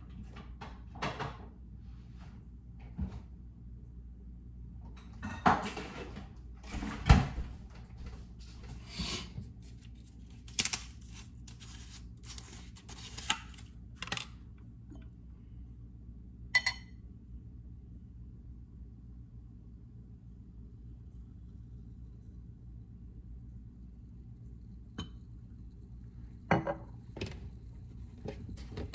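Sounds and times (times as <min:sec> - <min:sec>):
glass clinking: 0:16.6 - 0:16.9, 0:25.0 - 0:25.2, 0:26.5 - 0:26.9.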